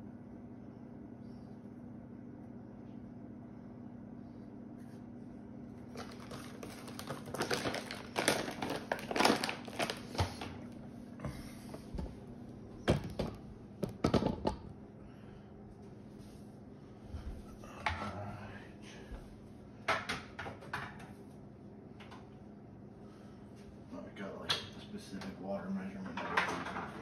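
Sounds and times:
plastic bag crinkling: 0:05.8 - 0:10.8.

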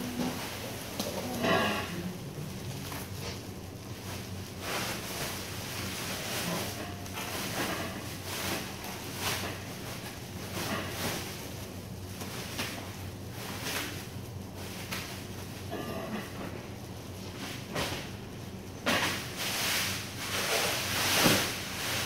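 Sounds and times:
plastic sack rustling: 0:00.0 - 0:16.3, 0:17.2 - 0:22.0
low machine hum: 0:00.0 - 0:22.0.

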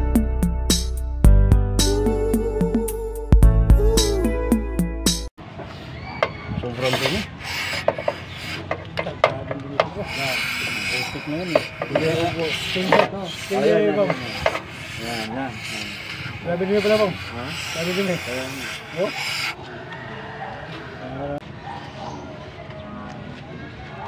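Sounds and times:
rag scrubbing metal part: 0:06.6 - 0:19.7.

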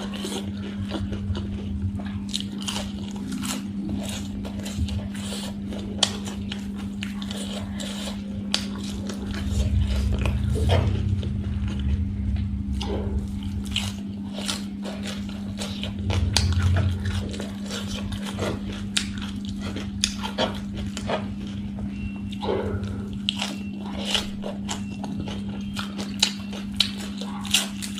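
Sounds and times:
crunching and chewing salad: 0:00.0 - 0:27.9
steady low hum: 0:00.0 - 0:27.9
low rumble: 0:00.5 - 0:03.8, 0:08.4 - 0:23.4.

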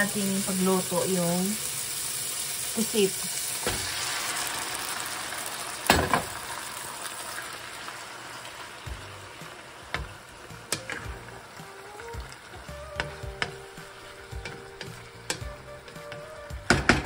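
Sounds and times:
squid sizzling in a frying pan: 0:00.0 - 0:17.0
wooden spatula knocking pan: 0:13.0 - 0:13.6, 0:14.3 - 0:17.0.

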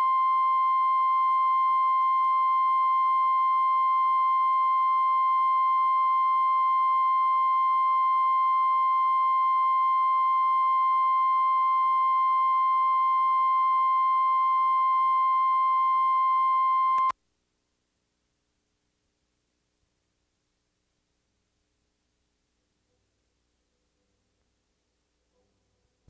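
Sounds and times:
steady line-up tone beep: 0:00.0 - 0:17.2.

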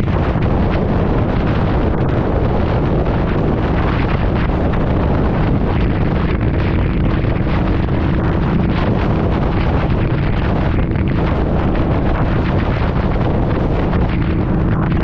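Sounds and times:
motorcycle engine running: 0:00.0 - 0:15.0
wind buffeting microphone: 0:00.0 - 0:15.0.

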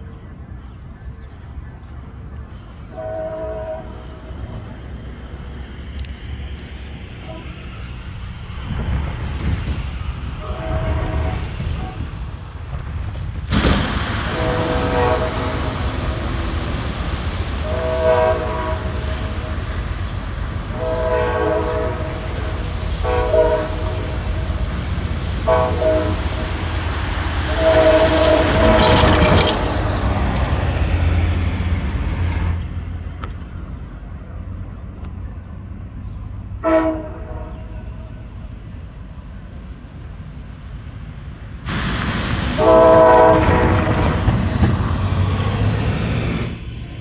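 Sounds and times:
low rumble of train: 0:00.0 - 0:47.0
train air horn blasts: 0:02.8 - 0:04.7, 0:07.2 - 0:07.9, 0:10.4 - 0:12.2, 0:14.2 - 0:16.8, 0:17.6 - 0:19.7, 0:20.7 - 0:24.5, 0:25.4 - 0:26.6, 0:27.2 - 0:29.7, 0:36.6 - 0:38.2, 0:42.5 - 0:44.3.

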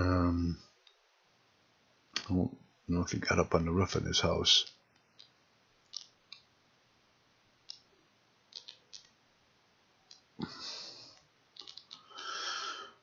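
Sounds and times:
computer mouse clicking: 0:08.5 - 0:09.2, 0:11.2 - 0:12.0.

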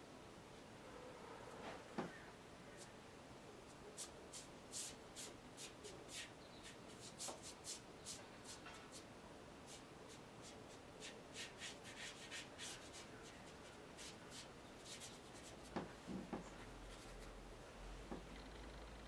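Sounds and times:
paintbrush swishing on paper: 0:03.7 - 0:17.4.

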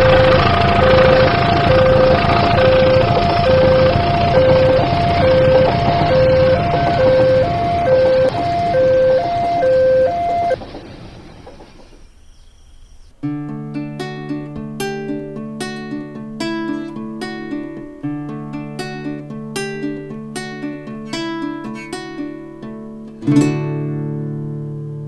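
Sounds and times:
strummed guitar music: 0:00.0 - 0:10.0, 0:13.2 - 0:25.0
two-tone crossing warning bell: 0:00.0 - 0:10.6
passing train rumble: 0:00.0 - 0:12.2.

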